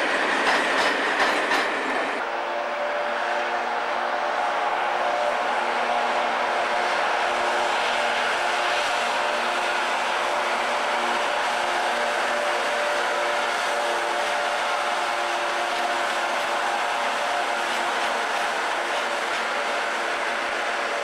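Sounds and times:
electric locomotive passing: 0.0s - 21.0s.

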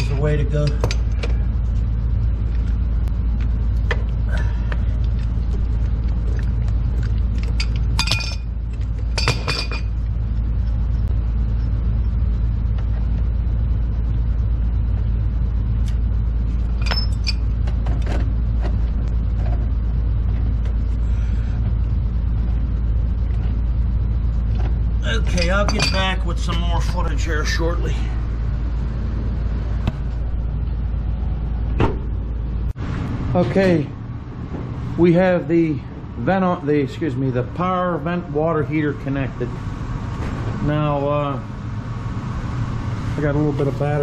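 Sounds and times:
low rumble: 0.0s - 44.0s
metal pipe fittings clinking: 7.4s - 8.5s, 9.1s - 9.9s, 16.8s - 17.5s, 25.2s - 26.2s.

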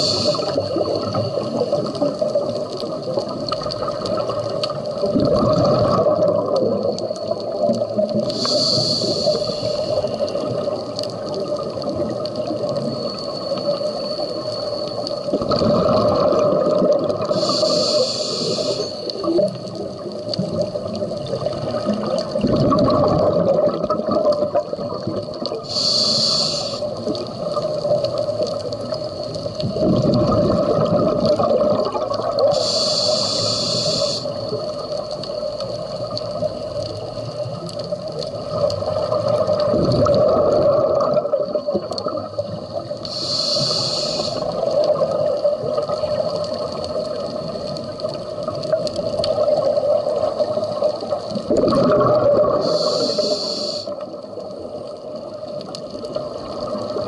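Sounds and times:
hissing regulator inhalations: 0.0s - 1.0s, 8.3s - 10.6s, 17.3s - 19.4s, 25.6s - 27.1s, 32.5s - 34.8s, 43.0s - 44.7s, 52.5s - 54.1s
bubbling exhaled air: 0.0s - 35.0s, 38.3s - 54.6s.

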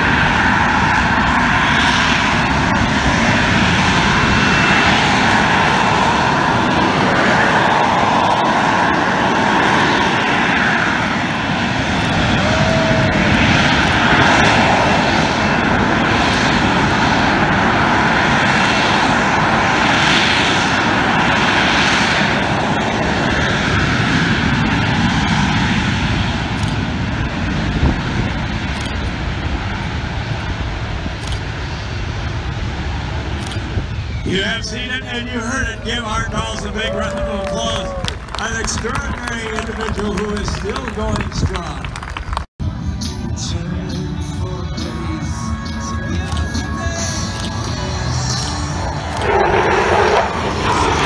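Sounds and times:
jet engine roaring steadily: 0.0s - 51.0s
hissing rise and fall: 46.5s - 51.0s.

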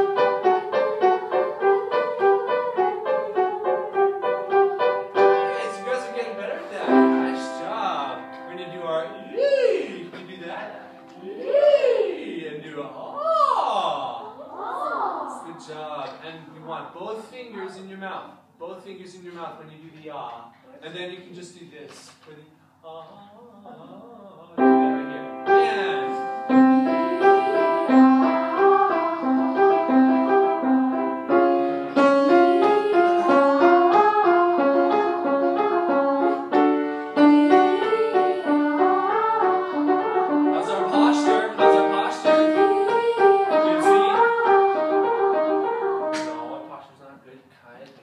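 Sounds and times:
children's choir singing ah: 0.0s - 8.3s, 25.6s - 46.4s
piano accompaniment: 0.0s - 12.4s, 24.6s - 46.8s.

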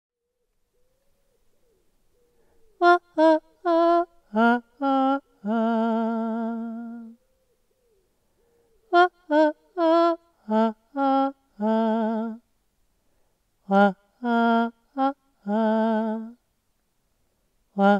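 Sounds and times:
woman singing unaccompanied: 2.8s - 7.2s, 8.9s - 12.5s, 13.6s - 16.5s.

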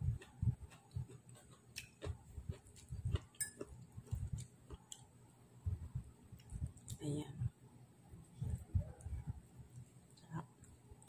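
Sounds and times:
person chewing noodles: 0.0s - 5.1s.

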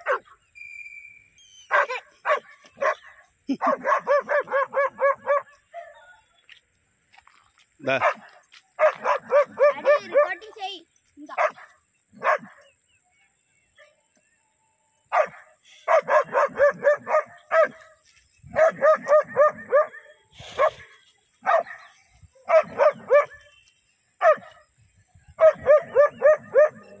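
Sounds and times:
dog barking: 0.0s - 0.3s, 1.7s - 6.2s, 7.9s - 10.5s, 11.4s - 12.7s, 15.1s - 17.9s, 18.5s - 21.9s, 22.5s - 23.6s, 24.2s - 24.6s, 25.4s - 27.0s.

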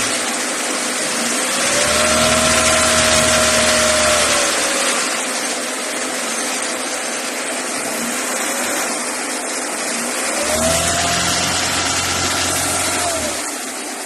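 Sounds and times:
car engine revving: 1.2s - 5.5s, 10.2s - 13.6s.

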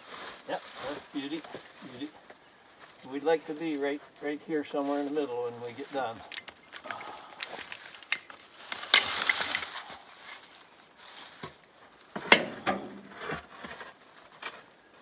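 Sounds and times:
metallic clicks and knocks: 6.3s - 9.7s.

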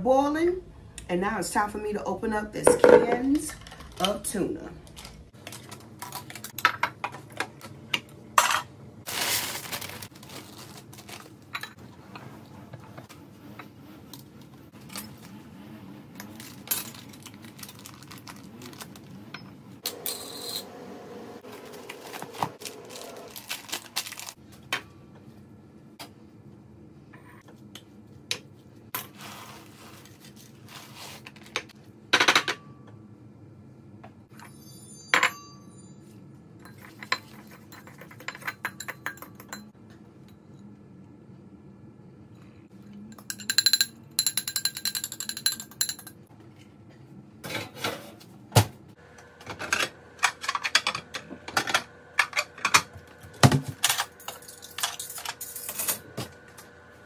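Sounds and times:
utensil clinking on ceramic dish: 43.1s - 46.1s.

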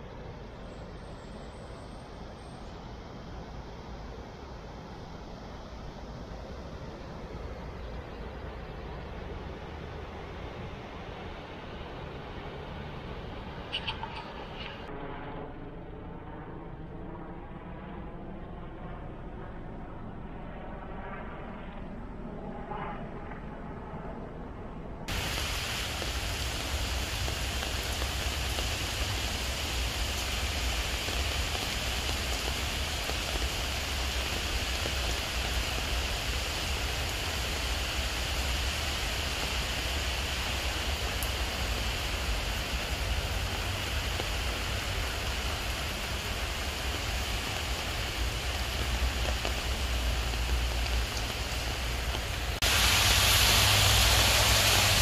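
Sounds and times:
rain on leaves and pavement: 25.1s - 55.0s.

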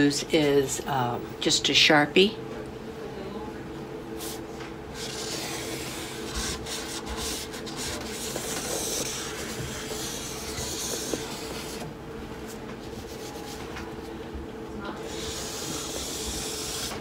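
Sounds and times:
marker scratching on canvas: 5.0s - 11.8s, 15.0s - 17.0s.

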